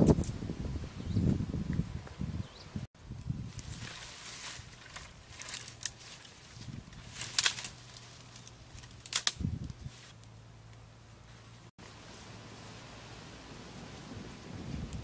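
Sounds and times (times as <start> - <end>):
dry twigs and leaves crackling: 3.1 - 13.0.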